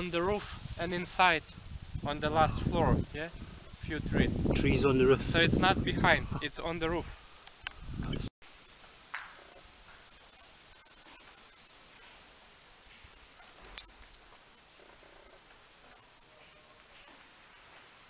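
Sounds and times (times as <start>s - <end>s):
insect chorus trilling: 8.4s - 18.0s.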